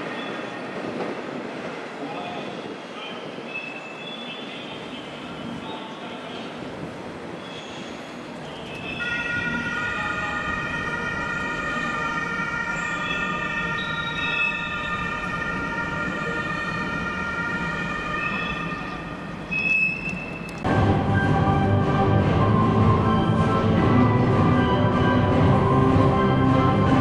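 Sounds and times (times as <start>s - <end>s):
rolling train rumble: 0.0s - 27.0s
train wheels squealing: 2.2s - 4.8s, 7.4s - 9.1s, 13.0s - 15.0s, 18.2s - 20.6s.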